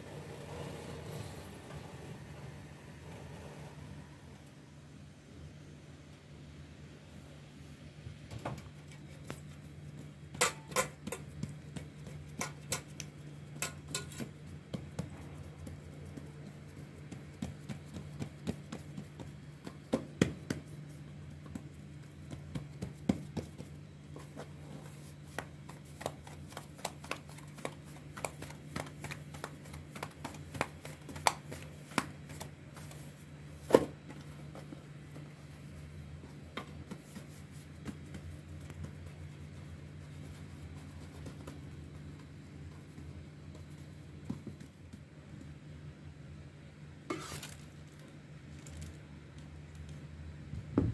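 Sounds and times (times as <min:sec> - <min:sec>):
steady low hum: 0:00.0 - 0:50.9
fingertips tapping dough on metal tray: 0:10.0 - 0:23.9.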